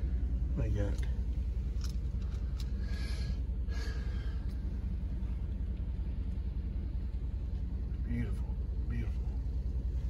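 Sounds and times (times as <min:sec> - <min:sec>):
car engine rumble: 0:00.0 - 0:10.0
road noise in car cabin: 0:00.0 - 0:10.0.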